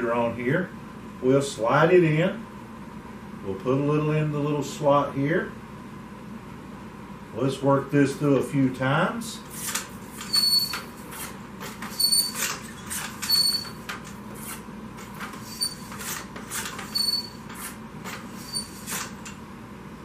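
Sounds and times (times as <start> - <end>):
short high squeaks: 9.5 - 14.6, 15.2 - 19.3
cleaning rod strokes through rifle bore: 9.5 - 19.3.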